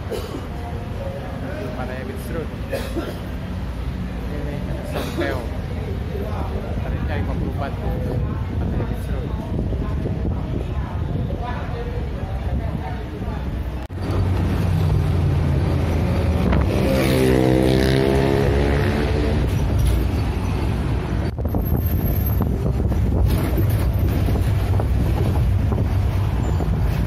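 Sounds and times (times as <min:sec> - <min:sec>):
wind rushing over microphone: 0:06.3 - 0:27.0.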